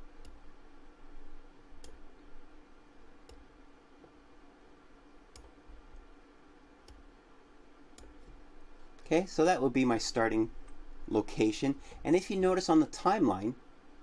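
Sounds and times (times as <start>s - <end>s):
low steady hum: 0.0s - 14.0s
computer mouse clicks: 0.2s - 0.4s, 1.8s - 2.0s, 5.3s - 6.1s, 6.8s - 7.0s, 7.9s - 8.4s.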